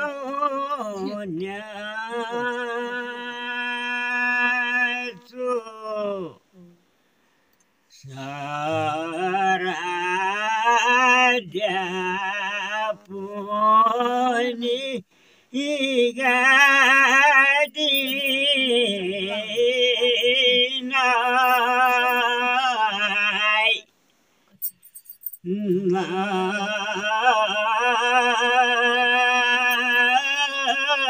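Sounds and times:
men singing unaccompanied: 0:00.0 - 0:06.4, 0:07.9 - 0:23.9, 0:25.5 - 0:31.0.

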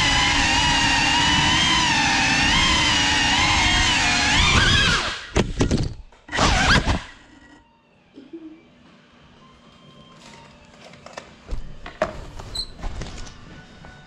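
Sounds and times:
motors spinning up: 0:00.0 - 0:07.6
drone motors whining: 0:00.0 - 0:08.2.

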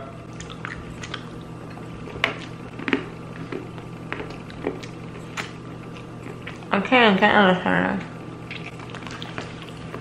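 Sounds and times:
lip smacks: 0:00.3 - 0:01.6, 0:02.3 - 0:06.7, 0:08.4 - 0:10.0
chewing and mouth clicks: 0:00.3 - 0:06.7, 0:08.4 - 0:10.0.

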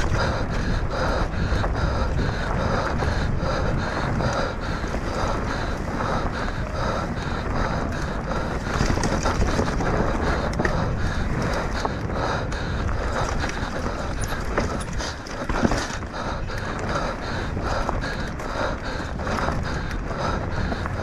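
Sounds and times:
bike tyres rumbling on dirt: 0:00.0 - 0:21.0
wind buffeting microphone: 0:00.0 - 0:21.0
chain and frame rattling: 0:12.8 - 0:17.1.

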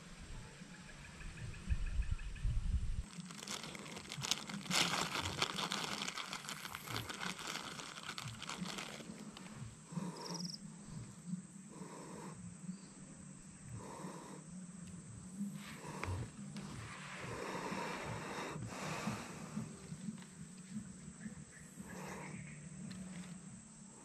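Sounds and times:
rustling and crackling plant stems: 0:03.0 - 0:11.3, 0:14.8 - 0:22.2.

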